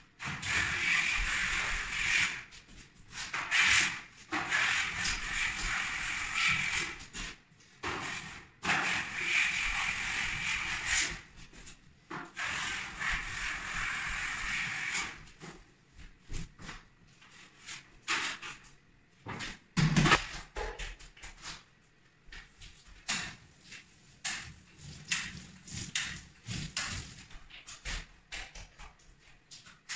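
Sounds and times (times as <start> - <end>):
drywall blade scraping ceiling: 0.2 - 15.6, 17.3 - 18.7, 23.1 - 29.9.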